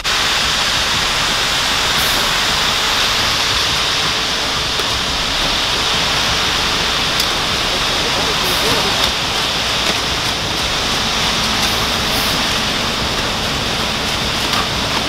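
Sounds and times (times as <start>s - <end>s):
concrete mixer truck running: 0.0s - 15.0s
concrete pouring down chute: 0.0s - 15.0s.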